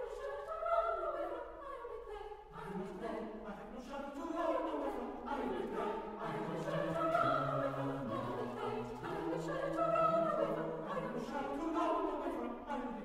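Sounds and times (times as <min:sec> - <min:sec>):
choir singing chords: 0:00.0 - 0:13.0.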